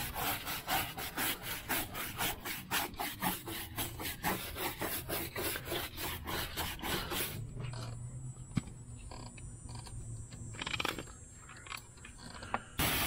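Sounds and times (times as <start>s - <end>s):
brush scrubbing a tire: 0.0s - 7.5s, 12.8s - 13.0s.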